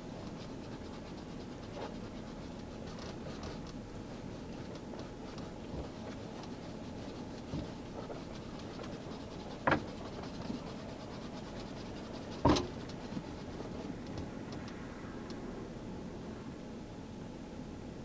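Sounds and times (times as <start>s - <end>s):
steady background hum: 0.0s - 18.0s
soft taps and rubbing: 1.3s - 14.8s.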